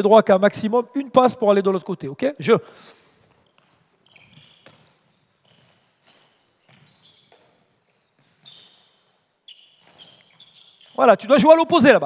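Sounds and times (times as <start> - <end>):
shoe squeaks: 2.8 - 12.0
ball and feet thudding: 3.4 - 8.8.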